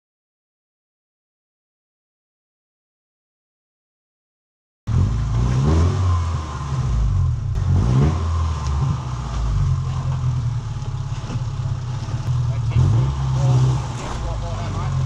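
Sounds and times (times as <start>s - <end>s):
car engine revving: 4.9s - 15.0s.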